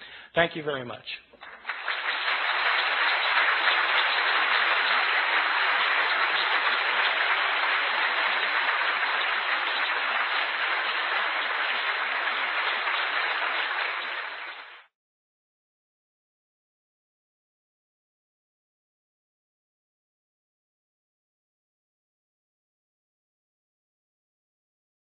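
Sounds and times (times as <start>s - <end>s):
audience applauding: 1.4s - 14.9s.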